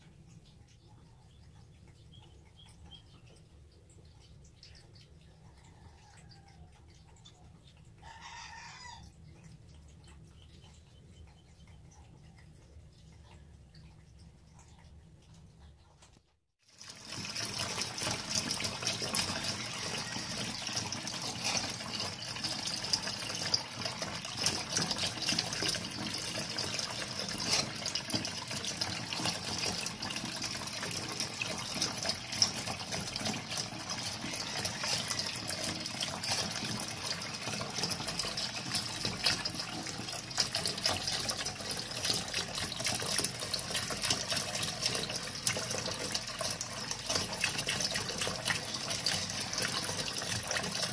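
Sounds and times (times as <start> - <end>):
tap water splashing into sink: 16.8 - 50.9.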